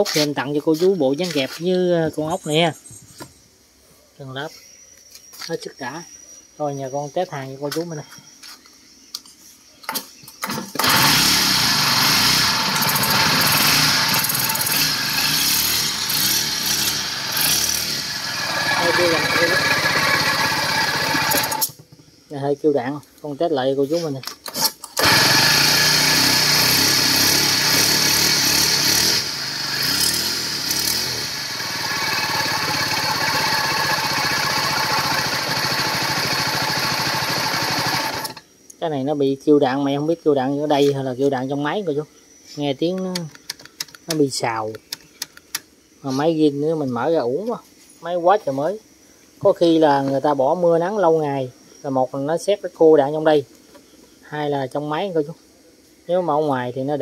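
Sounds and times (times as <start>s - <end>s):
brush cutter engine running: 10.4s - 21.8s, 24.5s - 38.4s
rough bearing noise: 12.6s - 21.9s.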